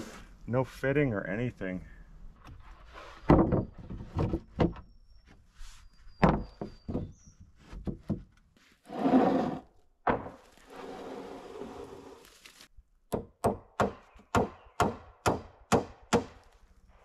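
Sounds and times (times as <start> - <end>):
boards scraping on wood: 2.5 - 4.8, 6.4 - 12.5
wooden boards knocking: 3.2 - 4.8, 10.1 - 10.4.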